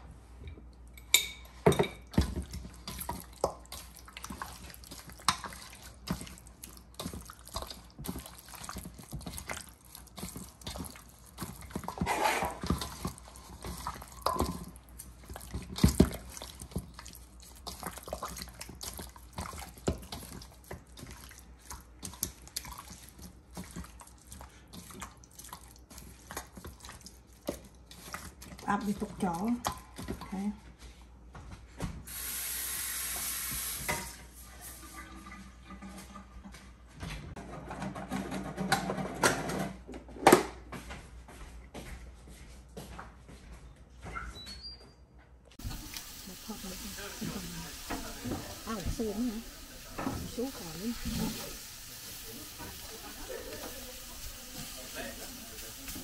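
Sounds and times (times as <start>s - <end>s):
water dripping: 45.6s - 56.0s.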